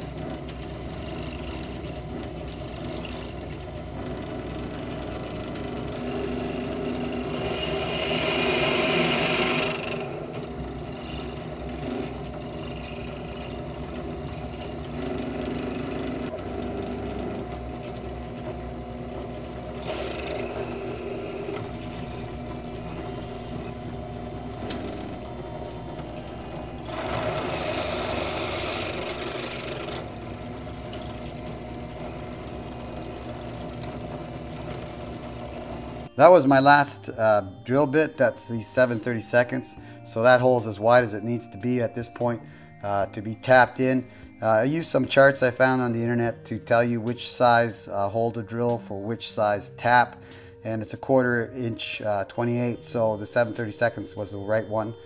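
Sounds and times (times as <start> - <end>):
drill press cutting metal: 0.0 - 42.2.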